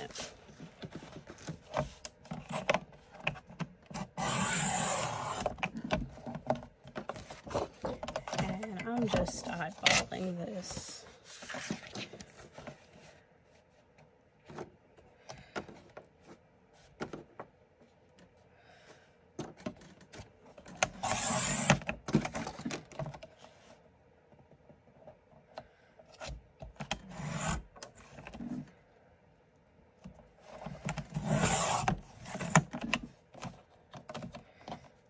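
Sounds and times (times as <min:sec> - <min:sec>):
paper trimmer blade cutting: 0:04.0 - 0:05.6, 0:31.2 - 0:32.6.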